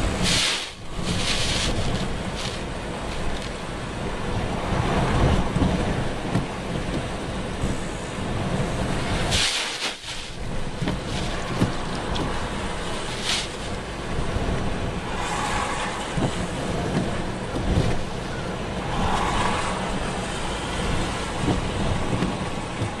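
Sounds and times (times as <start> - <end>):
storm wind buffeting microphone: 0.0 - 9.4, 10.3 - 23.0
rough sea breaking: 0.0 - 23.0
spray splashing: 0.2 - 2.7, 9.3 - 10.4.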